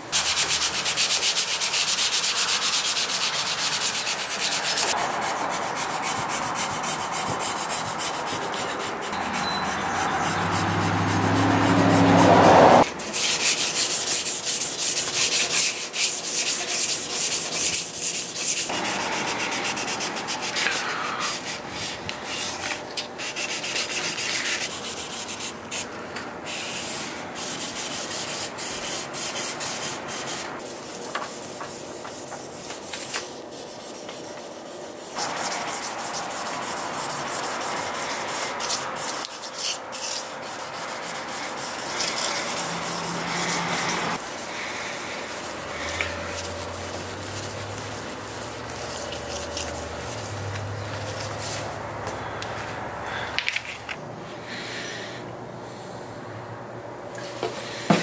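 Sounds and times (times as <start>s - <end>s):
sandpaper rasping on metal: 0.1s - 25.9s, 26.5s - 51.8s.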